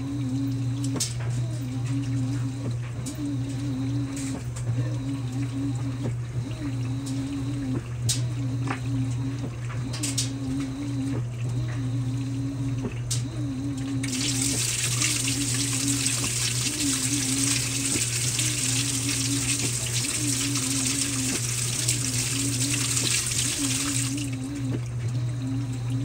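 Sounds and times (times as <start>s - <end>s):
washing machine motor whining: 0.0s - 26.0s
water spraying into drum: 14.0s - 24.9s.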